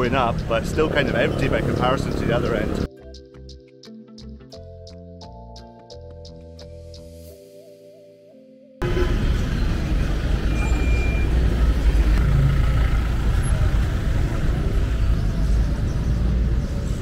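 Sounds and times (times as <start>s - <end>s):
vehicles passing close by: 0.0s - 2.9s, 8.8s - 17.0s
music: 0.0s - 8.8s.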